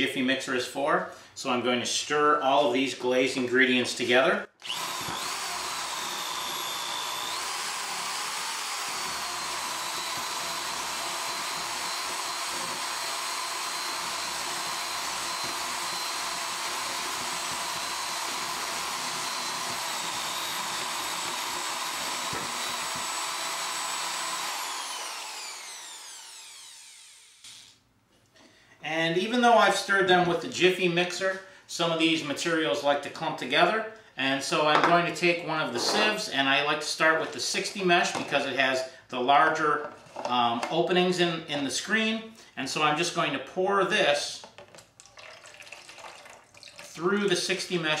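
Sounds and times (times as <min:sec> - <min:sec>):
electric drill whining: 0:04.6 - 0:27.8.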